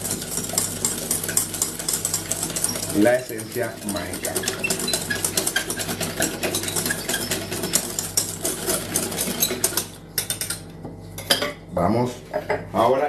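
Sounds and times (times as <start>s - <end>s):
utensil whisking in a container: 0.0s - 10.6s.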